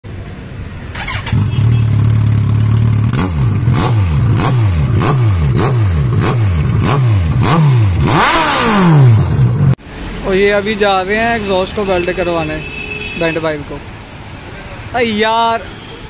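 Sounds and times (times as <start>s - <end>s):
motorcycle engine revving: 0.9s - 9.8s.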